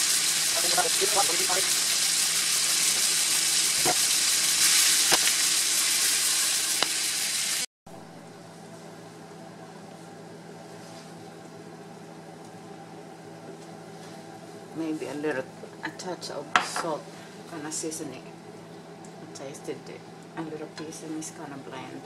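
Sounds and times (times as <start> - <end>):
potatoes sizzling in a skillet: 0.0 - 7.7.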